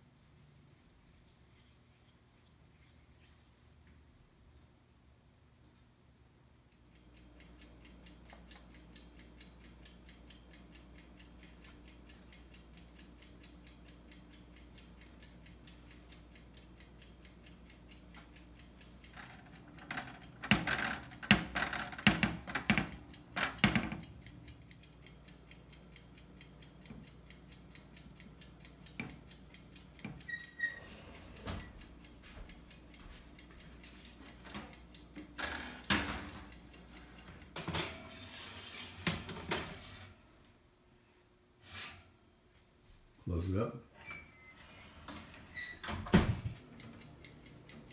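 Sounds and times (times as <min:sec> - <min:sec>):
metal baking sheet clanking: 0:37.6 - 0:40.0.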